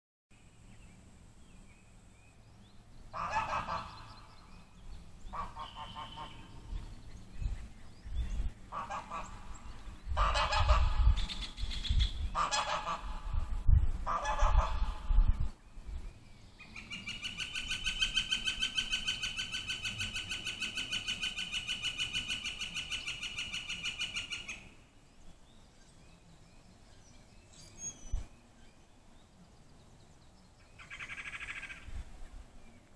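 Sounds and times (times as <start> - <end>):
waterfowl calling: 3.1 - 4.5, 5.3 - 6.7, 8.7 - 11.6, 12.3 - 13.4, 14.0 - 15.2.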